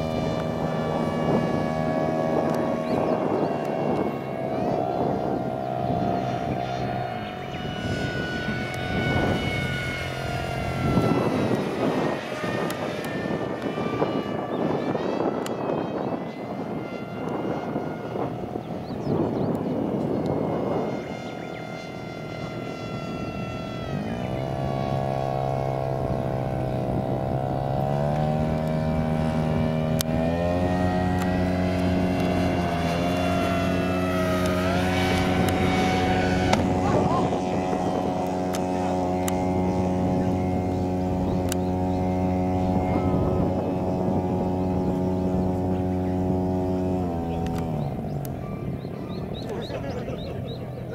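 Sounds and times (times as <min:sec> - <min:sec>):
model plane propeller whine: 0:00.0 - 0:50.9.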